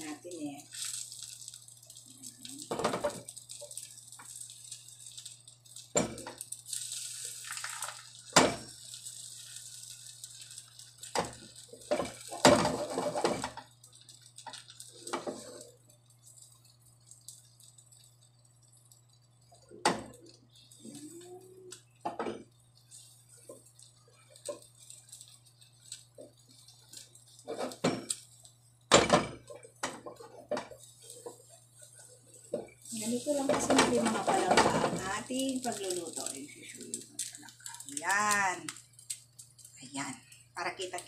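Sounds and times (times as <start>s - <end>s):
spatula scraping frying pan: 9.0s - 13.6s, 15.0s - 15.7s, 27.0s - 28.0s.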